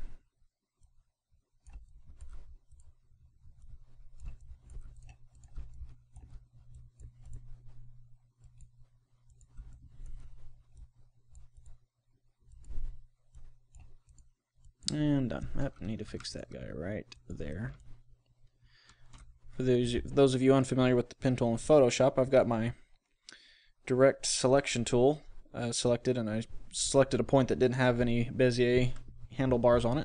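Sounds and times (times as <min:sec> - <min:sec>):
computer mouse clicks: 0:01.6 - 0:11.8, 0:12.4 - 0:15.0, 0:15.7 - 0:19.4
low steady hum: 0:01.6 - 0:30.0.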